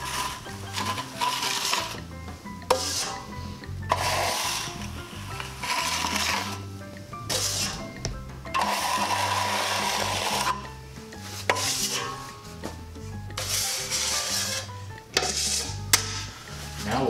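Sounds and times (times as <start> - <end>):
drywall knife scraping wall: 0.0 - 2.0, 2.7 - 6.6, 7.2 - 8.0, 8.6 - 10.6, 11.4 - 12.3, 13.4 - 16.4
background music: 0.0 - 17.0.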